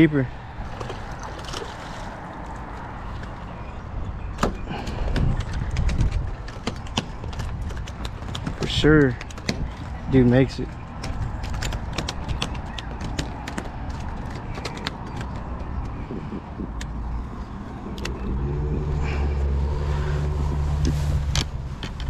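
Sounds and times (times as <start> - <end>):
low engine hum: 0.4 - 22.0
sharp clicks and taps: 11.0 - 17.0.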